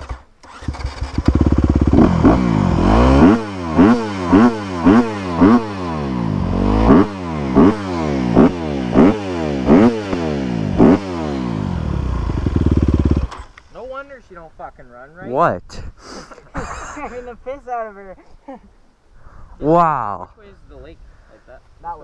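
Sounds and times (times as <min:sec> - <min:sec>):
dirt bike engine revving: 0:00.0 - 0:13.5.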